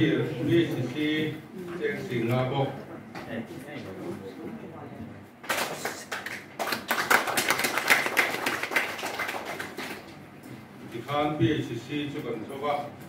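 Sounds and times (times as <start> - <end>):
audience applauding: 5.5 - 10.1.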